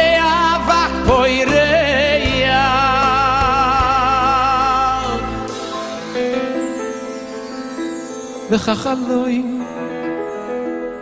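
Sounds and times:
man singing with vibrato: 0:00.0 - 0:06.6, 0:08.3 - 0:11.0
live band chord and bass: 0:00.0 - 0:11.0.

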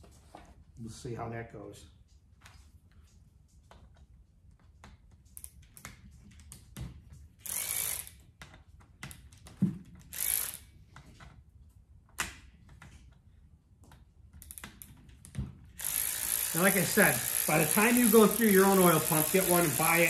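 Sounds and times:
ratcheting screwdriver clicking: 0:07.4 - 0:08.2.

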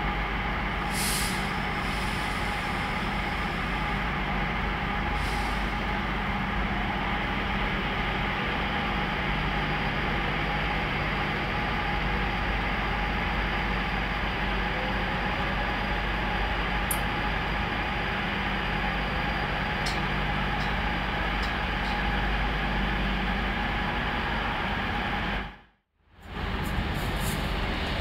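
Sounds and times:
train machinery hum: 0:00.0 - 0:28.0
compressed air hisses: 0:00.9 - 0:02.8.

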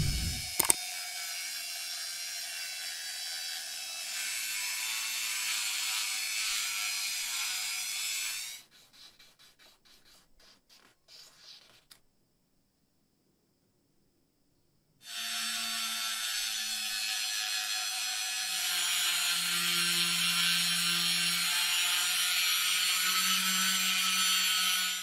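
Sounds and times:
rotary tool high whine: 0:00.0 - 0:01.8.

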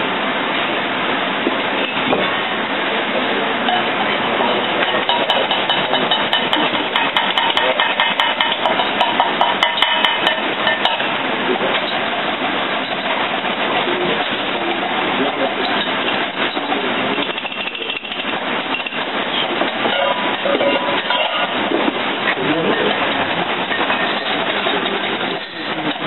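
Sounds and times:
kitchen background noise: 0:01.4 - 0:26.0
whisk clicking in metal bowl: 0:05.1 - 0:11.0.

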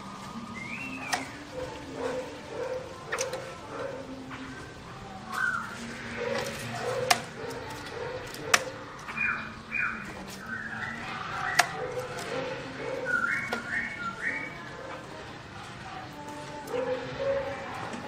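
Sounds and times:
bird singing whistled notes: 0:00.3 - 0:01.7, 0:04.5 - 0:06.0, 0:09.0 - 0:12.1, 0:12.9 - 0:14.8.

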